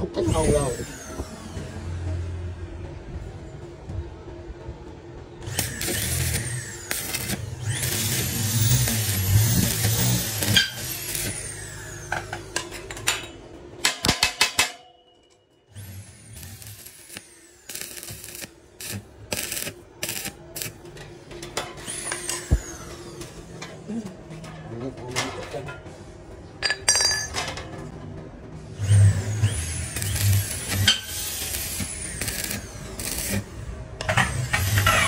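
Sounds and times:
welding arc crackling: 5.4 - 11.8, 16.0 - 20.8, 29.0 - 33.6.

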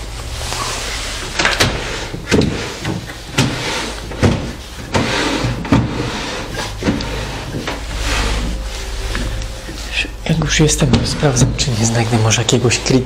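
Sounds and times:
steady low hum: 0.0 - 13.0
furniture knocks and clatters: 1.4 - 8.5.

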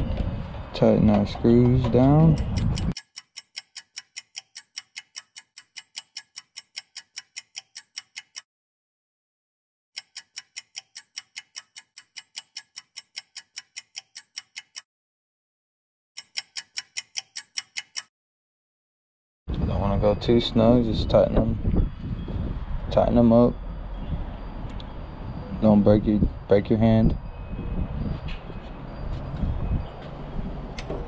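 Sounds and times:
clock ticking: 2.0 - 8.5, 10.0 - 14.9, 16.2 - 18.1.

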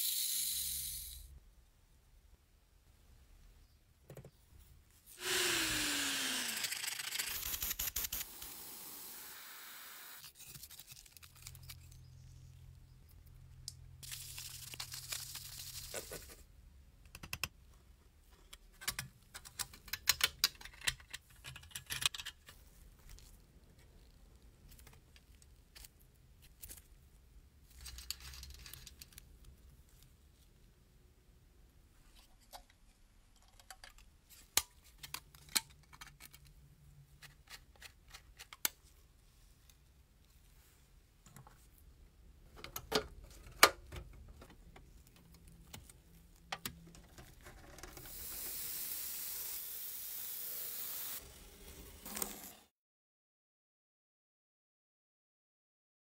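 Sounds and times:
loud falling hiss: 7.2 - 10.2, 48.0 - 52.7.

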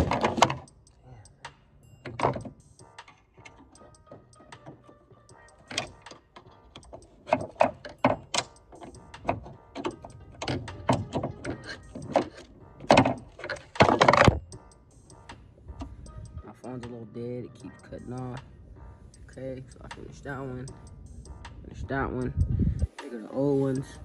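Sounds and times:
rattle: 5.6 - 15.1.

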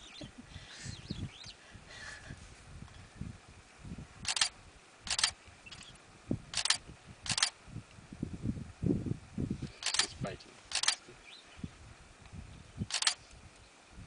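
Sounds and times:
camera shutter clicking: 4.2 - 5.9, 6.5 - 7.6, 9.8 - 11.0, 12.9 - 13.3.

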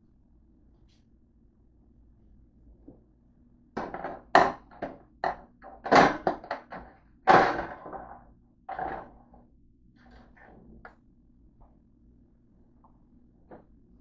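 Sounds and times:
kitchen objects knocking and clattering: 3.8 - 9.2.

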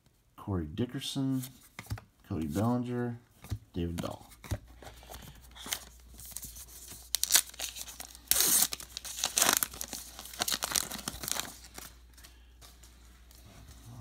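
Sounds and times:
wrapper tearing and crinkling: 6.3 - 11.9.

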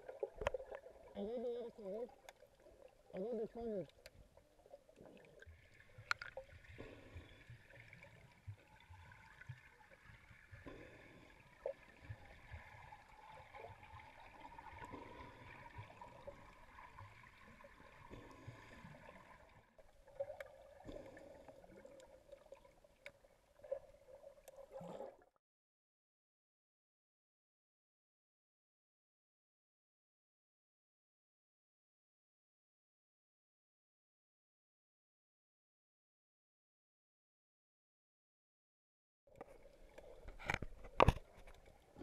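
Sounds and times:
underwater water rumble and gurgling: 0.0 - 25.4, 39.3 - 42.0.

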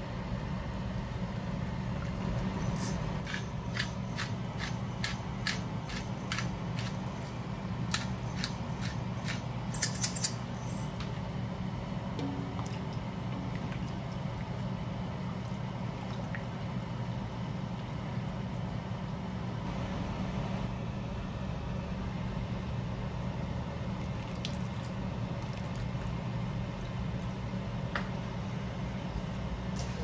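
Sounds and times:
low hum: 0.0 - 23.8.

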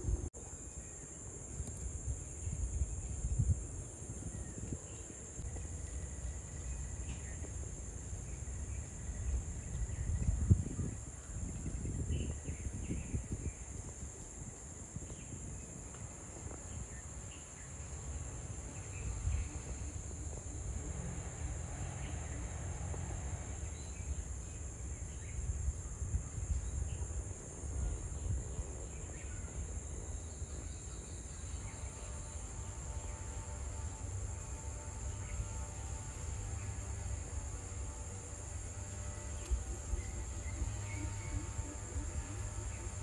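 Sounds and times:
insects trilling: 0.0 - 43.0
low rumble on microphone: 1.5 - 30.8.

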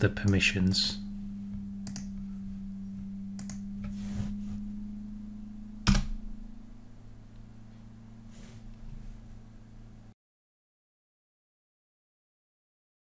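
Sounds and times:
steady low hum: 0.0 - 10.2
keyboard and mouse clicks: 1.8 - 2.1, 3.4 - 3.6.

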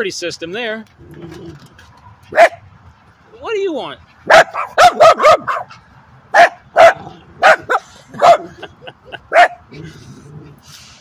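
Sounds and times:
small dog barking: 2.3 - 2.6, 4.3 - 5.7, 6.4 - 8.4
dog yapping: 4.3 - 5.8.

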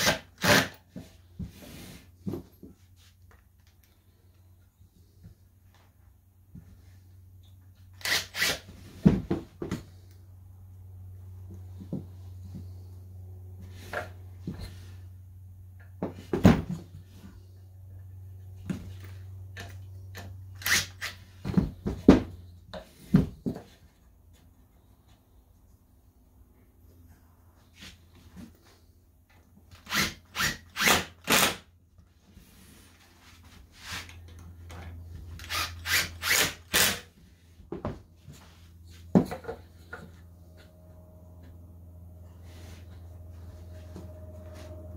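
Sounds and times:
impact driver driving screws: 8.0 - 8.6, 29.8 - 31.6, 35.4 - 37.1
steady low hum: 37.0 - 44.9.

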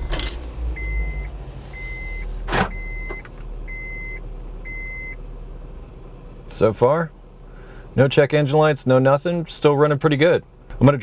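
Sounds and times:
car engine idling: 0.0 - 11.0
car warning chime beeping: 0.7 - 5.3.

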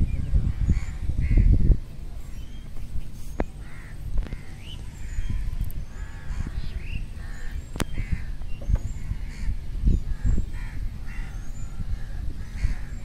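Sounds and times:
wind rumble on microphone: 0.0 - 13.0
crows cawing: 3.6 - 5.2, 6.0 - 8.4, 10.1 - 13.0.

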